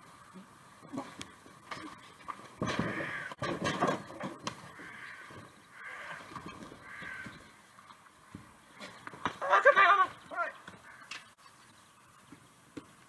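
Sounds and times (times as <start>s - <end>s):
drawn-out cries: 4.7s - 7.7s.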